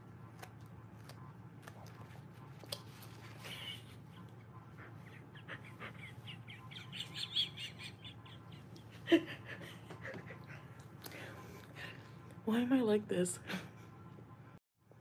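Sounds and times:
woman giggling: 3.4s - 10.7s.

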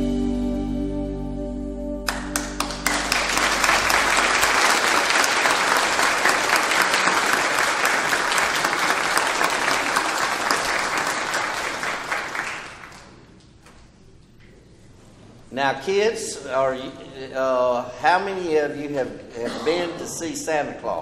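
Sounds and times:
crowd applauding: 2.1s - 13.4s.

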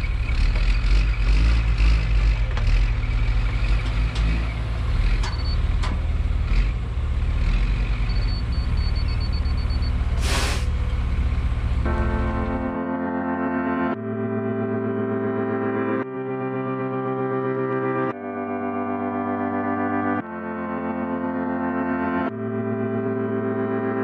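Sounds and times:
excavator diesel engine under load: 0.0s - 12.8s
short hiss: 10.2s - 10.8s
music: 11.9s - 24.0s.

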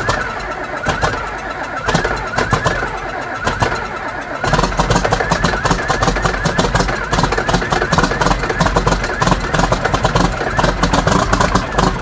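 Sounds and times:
tractor diesel engine running rough: 0.0s - 12.0s.

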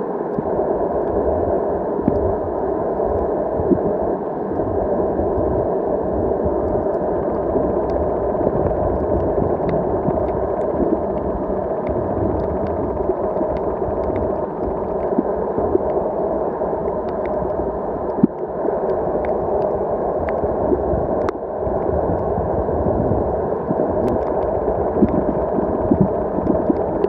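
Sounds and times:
muffled underwater water noise: 0.0s - 27.0s
faint ticks: 24.0s - 27.0s.

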